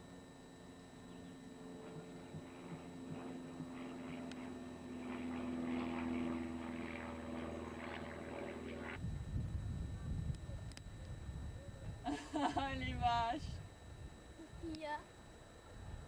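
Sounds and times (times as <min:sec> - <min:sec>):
motor droning: 0:00.0 - 0:16.0
wind rumble on microphone: 0:08.8 - 0:14.3.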